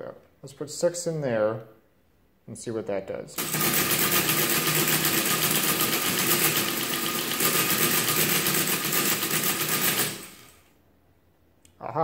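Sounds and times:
mechanical calculator chattering: 3.4s - 10.6s.

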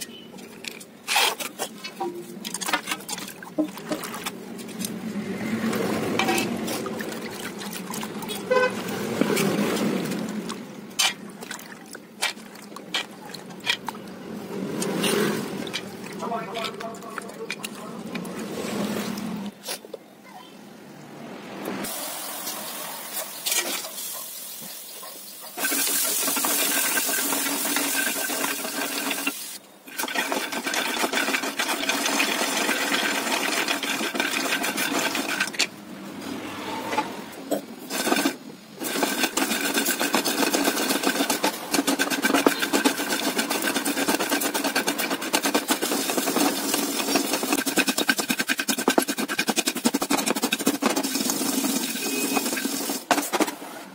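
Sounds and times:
wooden masher pounding peanuts: 25.6s - 29.3s, 30.0s - 35.7s, 37.9s - 53.6s
peanuts rattling in frying pan: 25.6s - 35.6s, 37.9s - 53.4s
peanuts swishing in bowl of water: 25.7s - 29.2s, 29.9s - 35.6s, 37.9s - 53.0s.

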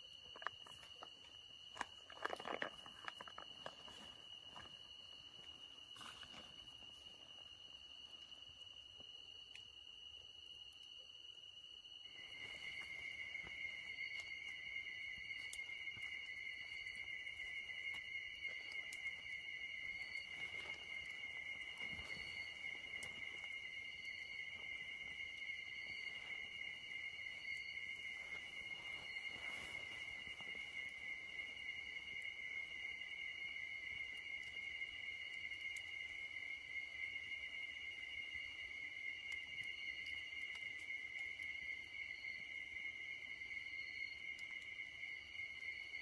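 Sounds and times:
insect high chirps: 0.0s - 46.0s
insects trilling: 0.0s - 46.0s
faint rustles: 27.9s - 31.5s.

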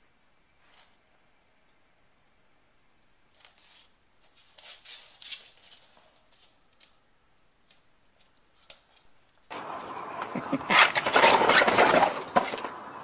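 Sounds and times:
puppy paws scuffing wooden floor: 3.4s - 6.9s.

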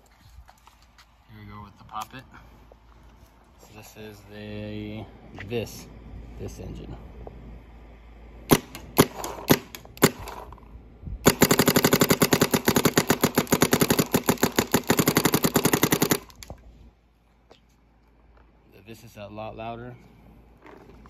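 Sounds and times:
paintball marker firing: 8.5s - 10.5s, 11.2s - 16.5s.

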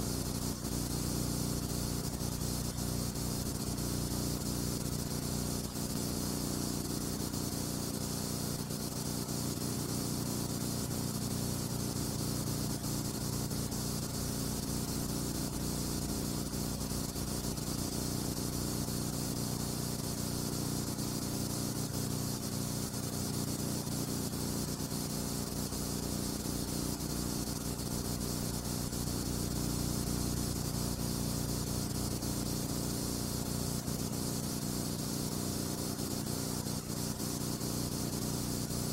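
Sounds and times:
steady hiss: 0.0s - 38.9s.

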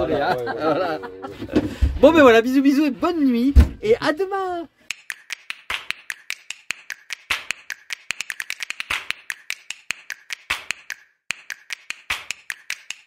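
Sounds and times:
sharp clicks and snaps: 4.9s - 13.0s.

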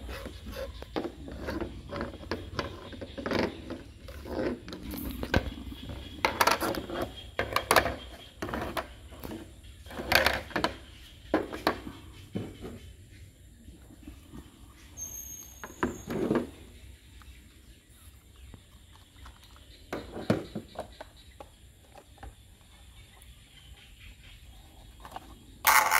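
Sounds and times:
plastic toy parts clattering: 25.0s - 25.9s.

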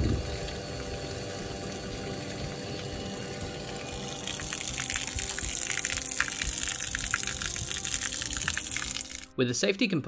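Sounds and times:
water splashing onto gravel: 4.0s - 9.3s.

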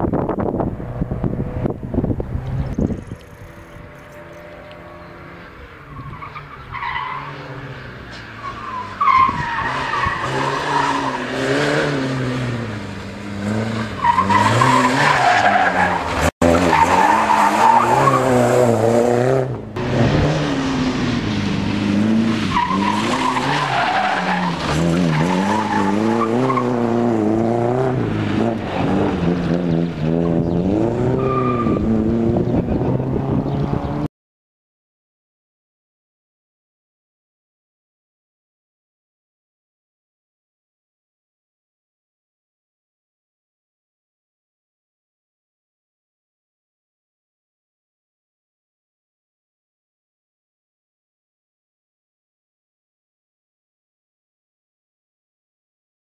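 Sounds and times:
rally car engines revving: 0.1s - 34.1s
tyres on gravel: 19.8s - 31.8s.

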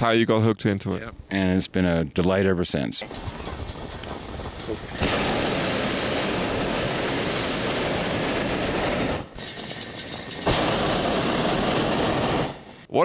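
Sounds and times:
propane burner roaring: 3.0s - 12.9s.

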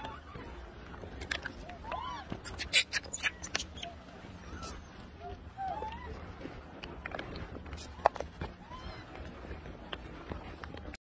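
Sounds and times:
low steady rumble: 0.0s - 11.0s
soft clicks and rustles: 4.6s - 11.0s.

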